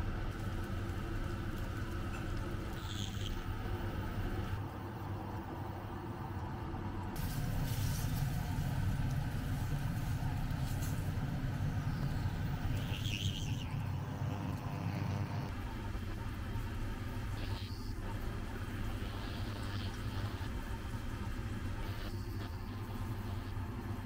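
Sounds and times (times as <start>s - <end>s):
fish frying in oil: 0.0s - 4.2s, 7.2s - 24.0s.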